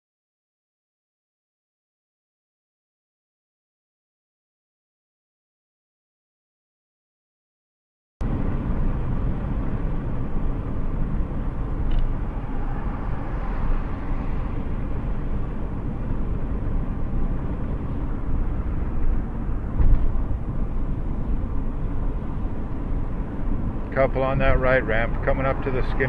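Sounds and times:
car road and engine rumble: 8.2 - 26.0
car bump: 19.7 - 20.2.

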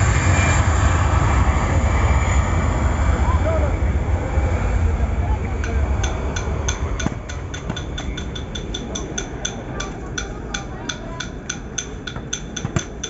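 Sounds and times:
distant jet engines rumbling: 0.0 - 13.0.

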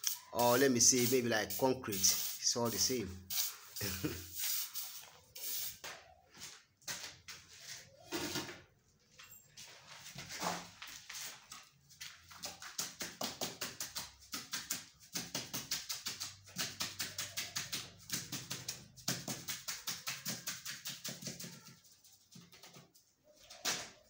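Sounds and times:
wooden plank tapping wet mortar: 12.4 - 21.4.

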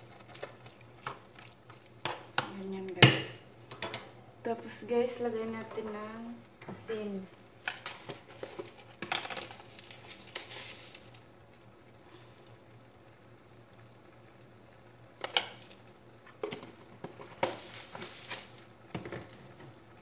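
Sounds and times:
salt shaker shaking: 7.7 - 11.2, 17.3 - 18.6.

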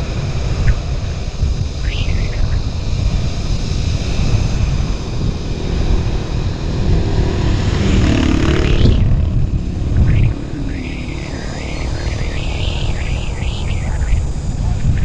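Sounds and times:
wind buffeting microphone: 0.0 - 15.0
rising whine: 0.4 - 15.0
scooter engine running: 4.1 - 11.7.

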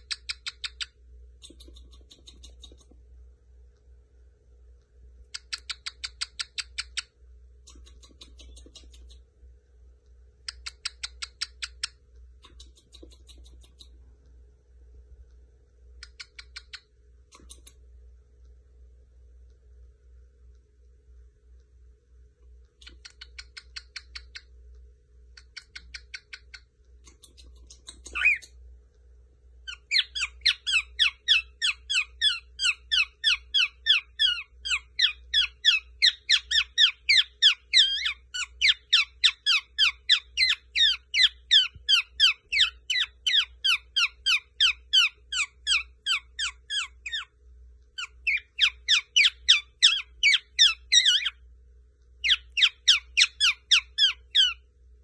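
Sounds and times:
cockatiel chattering: 0.0 - 2.9, 5.4 - 7.1, 7.7 - 9.2, 10.5 - 13.9, 22.8 - 24.5, 25.4 - 28.5, 29.7 - 47.3, 48.0 - 51.4, 52.2 - 54.6.

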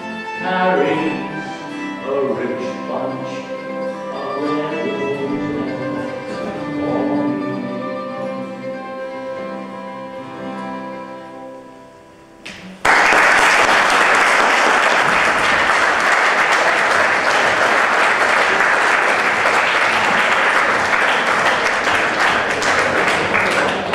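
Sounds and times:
plucked mandolin notes: 0.0 - 11.7
audience applause: 12.8 - 23.9.

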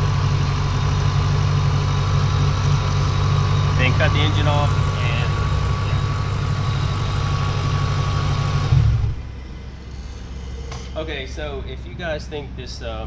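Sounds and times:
car engine idling: 0.0 - 13.0
engine shutting off: 0.0 - 13.0.

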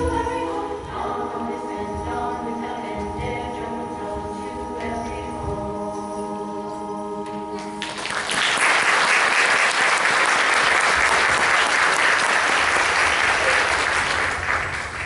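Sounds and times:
audience applause: 7.8 - 15.0.

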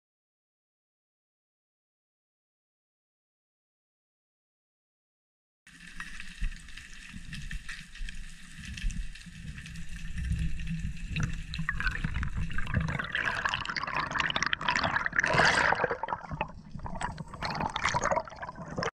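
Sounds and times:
underwater rumble and hiss: 5.7 - 13.6
bubbling and rushing water: 5.7 - 18.9.

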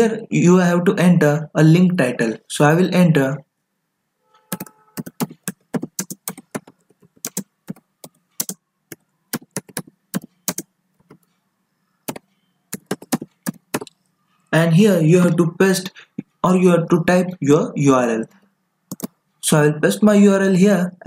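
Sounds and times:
typing on computer keyboard: 4.5 - 11.3, 12.0 - 14.0, 18.9 - 19.2.

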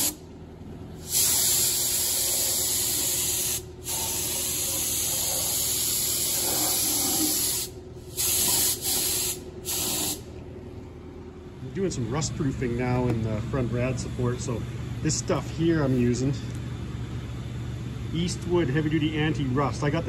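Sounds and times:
spray gun hissing: 1.0 - 10.2.

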